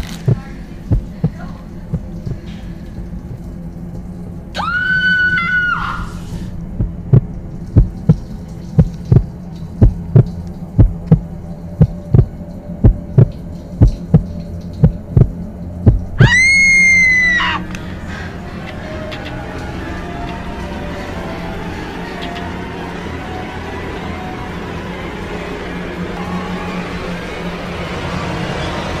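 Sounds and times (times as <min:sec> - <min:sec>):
low drone: 0:00.0 - 0:29.0
heartbeat thuds: 0:00.3 - 0:02.5, 0:06.8 - 0:16.3
woman screaming: 0:04.6 - 0:06.2, 0:16.2 - 0:17.7.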